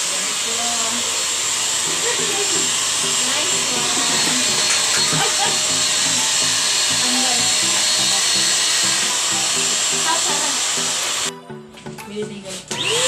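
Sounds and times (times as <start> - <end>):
vacuum cleaner motor running: 0.0 - 11.3, 12.7 - 13.0
background music: 1.7 - 13.0.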